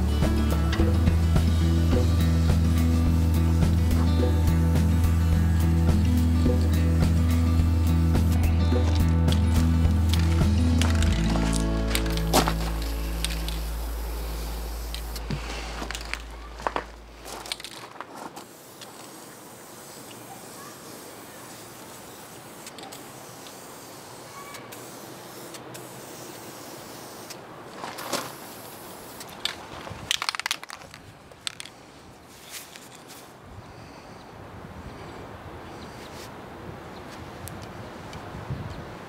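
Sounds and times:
background music: 0:00.0 - 0:15.5
spray can hissing: 0:00.0 - 0:16.4, 0:18.4 - 0:29.4.

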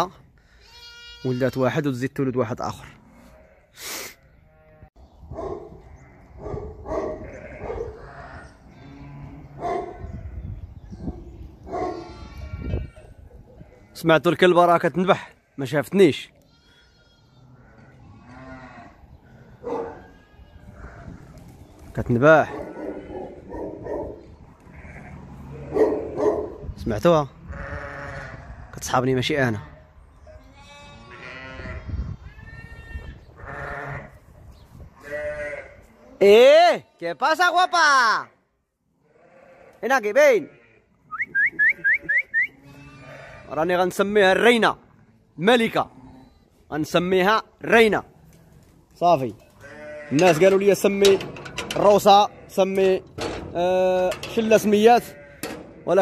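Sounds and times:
sheep and lambs bleating: 0:00.5 - 0:01.8, 0:02.8 - 0:05.1, 0:05.8 - 0:06.4, 0:07.0 - 0:14.2, 0:15.1 - 0:21.4, 0:24.4 - 0:26.1, 0:27.4 - 0:28.7, 0:29.5 - 0:34.2, 0:34.9 - 0:36.2, 0:38.9 - 0:41.0, 0:42.5 - 0:43.8, 0:49.4 - 0:51.0, 0:51.7 - 0:56.0
dog barking: 0:05.3 - 0:05.8, 0:06.4 - 0:08.0, 0:09.6 - 0:10.0, 0:11.7 - 0:12.0, 0:19.6 - 0:20.1, 0:22.5 - 0:24.2, 0:25.7 - 0:26.6.

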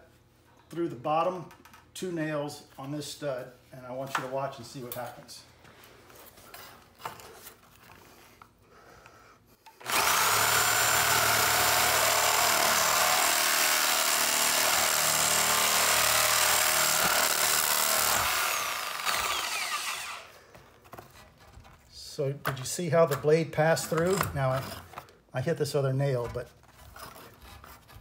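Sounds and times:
reciprocating saw cutting nails: 0:09.7 - 0:20.3.

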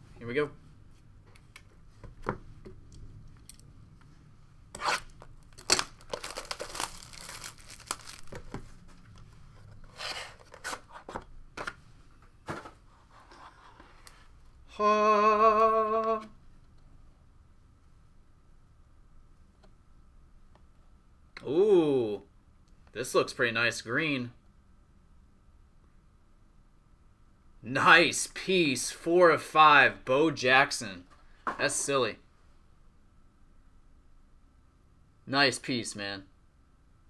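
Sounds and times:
hands tearing packaging: 0:04.8 - 0:08.5
cardboard clicks and rustles: 0:05.4 - 0:11.8.

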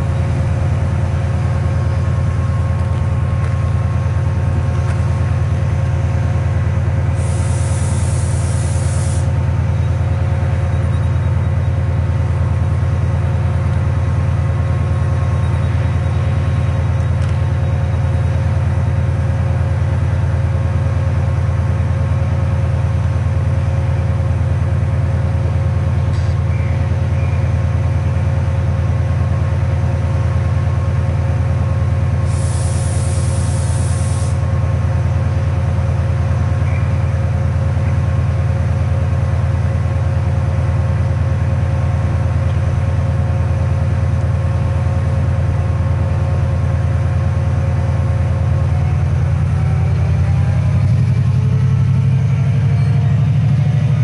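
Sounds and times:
diesel locomotive idling: 0:00.0 - 0:54.0
air hiss: 0:07.2 - 0:09.3, 0:32.2 - 0:34.4.

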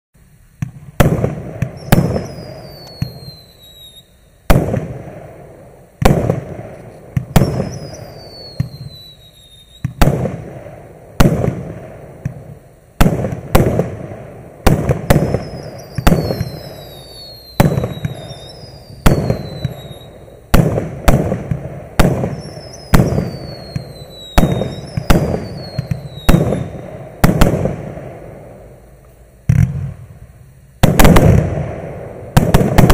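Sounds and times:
crackling bursts: 0:00.2 - 0:32.9
fireworks reports: 0:00.5 - 0:32.9
high falling whistle: 0:01.6 - 0:04.4, 0:07.3 - 0:10.0, 0:15.2 - 0:20.4, 0:22.3 - 0:26.8.

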